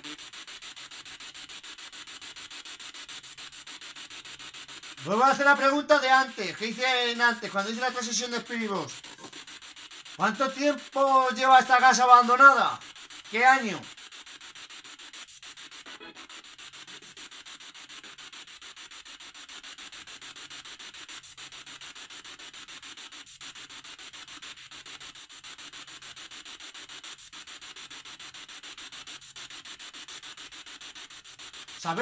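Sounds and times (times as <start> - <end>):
pulsing radio static: 0.0 - 0.4, 4.8 - 14.1, 15.6 - 17.1, 31.8 - 32.0.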